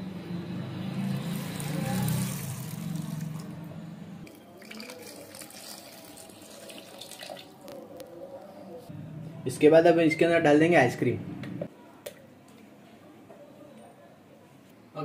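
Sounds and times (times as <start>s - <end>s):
milk pouring into plastic jar: 4.3s - 7.9s.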